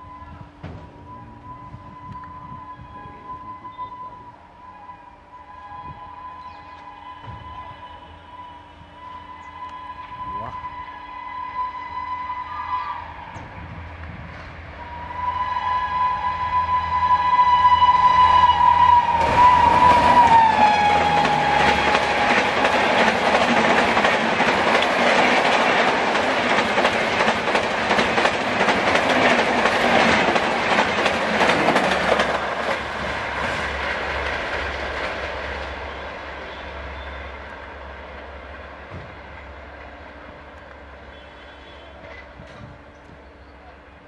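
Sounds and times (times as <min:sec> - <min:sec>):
shrill locomotive horn: 0:00.0 - 0:13.9, 0:14.7 - 0:24.0, 0:35.7 - 0:37.6, 0:40.8 - 0:42.7
train wheels clattering over track: 0:19.1 - 0:37.1, 0:41.2 - 0:43.2.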